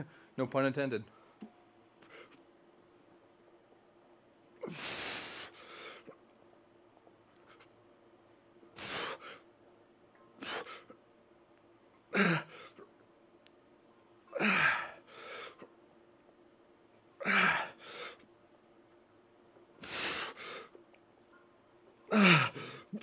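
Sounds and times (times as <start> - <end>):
man exhaling forcefully: 4.6 - 5.9, 8.8 - 9.3.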